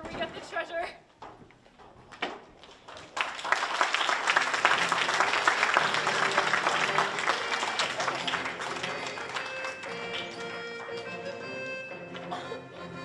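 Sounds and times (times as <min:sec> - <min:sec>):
audience applauding: 0:02.7 - 0:12.2.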